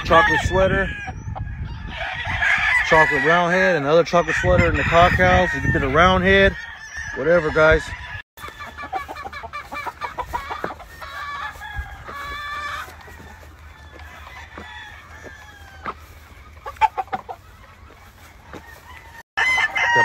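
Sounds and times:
roosters clucking: 0:00.0 - 0:20.0
rooster crowing: 0:10.9 - 0:16.3, 0:18.5 - 0:20.0
sharp rooster calls: 0:18.6 - 0:20.0.

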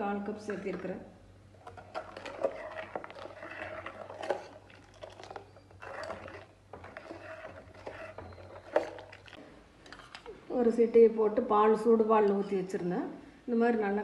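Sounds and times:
milk splashing: 0:01.6 - 0:09.4
spoon scraping and clinking pan: 0:01.7 - 0:10.3.

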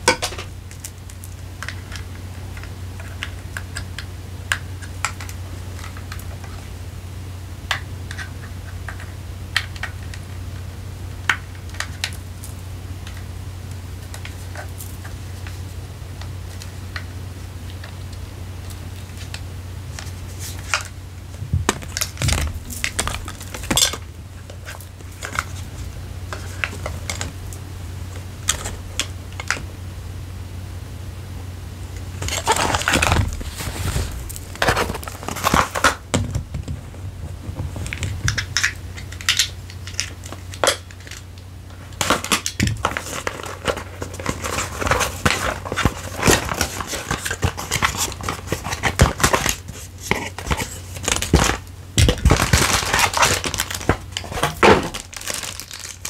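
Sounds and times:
low steady hum: 0:00.0 - 0:56.0
packaging rustling and scraping: 0:18.6 - 0:29.7, 0:32.1 - 0:56.0.

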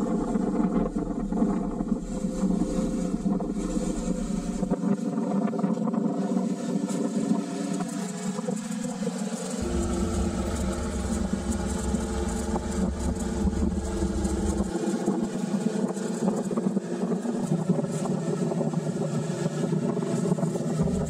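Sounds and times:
motorcycle engine running: 0:09.6 - 0:14.7
low rumble: 0:09.6 - 0:15.2, 0:20.8 - 0:21.0.

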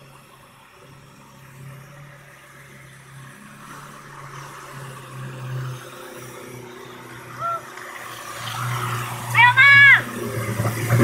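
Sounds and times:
water rushing and splashing: 0:03.0 - 0:11.0.

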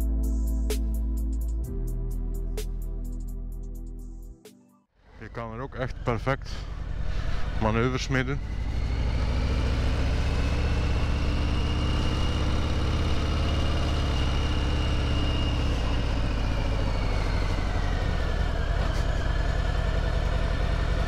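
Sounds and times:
motorcycle engine running: 0:05.8 - 0:21.0.

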